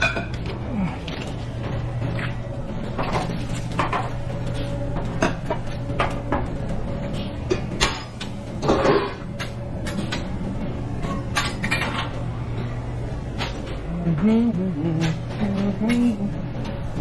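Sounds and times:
cookware clatter: 0:00.0 - 0:00.5
steady low hum: 0:00.0 - 0:17.0.

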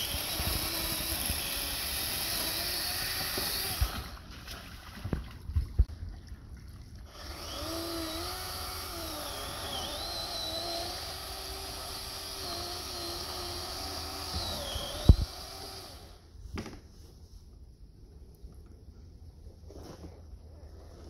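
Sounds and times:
chainsaw running: 0:00.0 - 0:04.2, 0:07.1 - 0:16.2.

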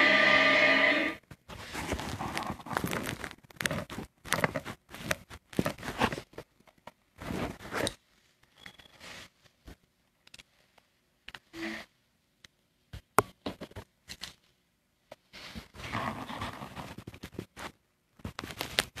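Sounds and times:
scratchy rustling: 0:00.0 - 0:06.5, 0:07.2 - 0:08.0, 0:15.3 - 0:19.0.

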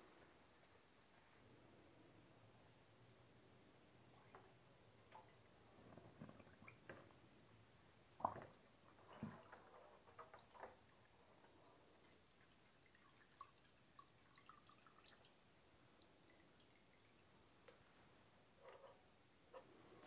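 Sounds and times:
liquid splashing in a bucket: 0:08.2 - 0:15.4.

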